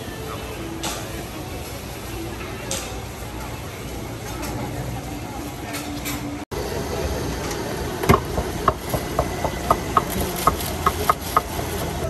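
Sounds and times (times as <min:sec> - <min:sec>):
crowd chatter: 0:00.0 - 0:12.0
street noise: 0:00.0 - 0:12.0.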